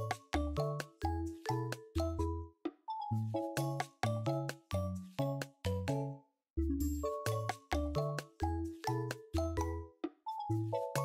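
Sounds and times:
music with struck notes and bass: 0:06.6 - 0:11.0.

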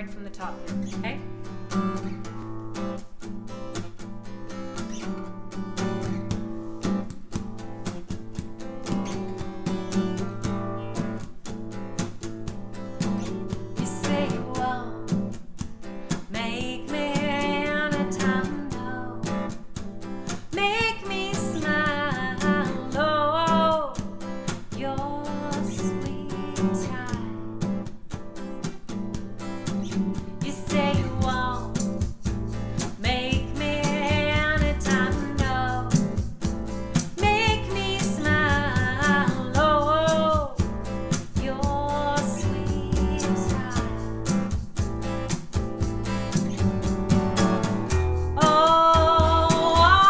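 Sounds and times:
strummed acoustic guitar: 0:00.0 - 0:50.0
person singing with vibrato: 0:20.5 - 0:24.0, 0:33.0 - 0:36.1, 0:37.1 - 0:40.6, 0:41.2 - 0:44.2, 0:48.4 - 0:50.0.

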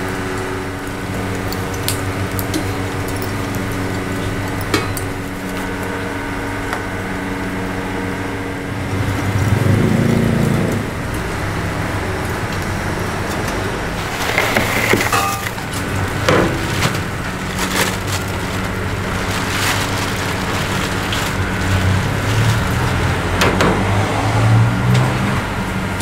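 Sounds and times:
machine hum: 0:00.0 - 0:26.0
ash pouring out: 0:13.9 - 0:23.3
charcoal clattering: 0:13.9 - 0:23.8
ash scooping: 0:14.0 - 0:23.3.

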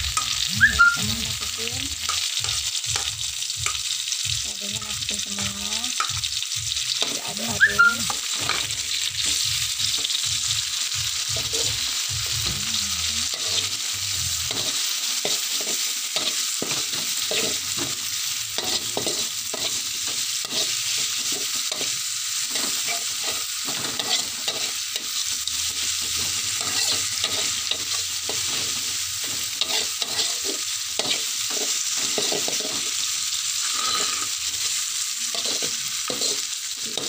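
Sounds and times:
food sizzling in hot oil: 0:00.0 - 0:37.0
metal spatula scraping wok: 0:07.0 - 0:09.5, 0:14.4 - 0:37.0.

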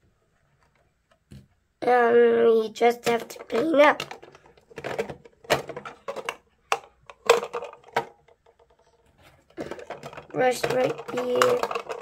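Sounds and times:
plastic toy pieces clicking: 0:03.0 - 0:08.9, 0:09.6 - 0:12.0.

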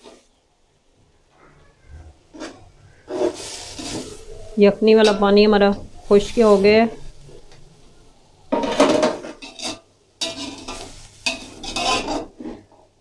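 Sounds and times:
metal spatula scraping a pot: 0:02.3 - 0:05.5, 0:08.6 - 0:12.8
vegetables sizzling: 0:02.3 - 0:13.0.

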